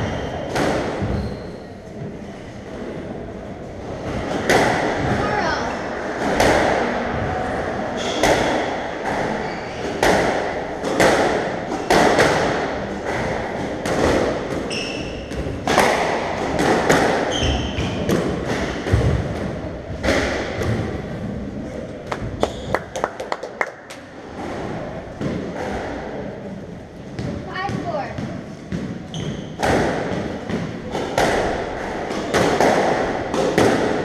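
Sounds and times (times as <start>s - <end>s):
squash ball hitting rackets and walls: 0.0s - 3.0s, 3.8s - 34.0s
shoes squeaking on hardwood floor: 1.0s - 2.0s, 14.7s - 15.3s.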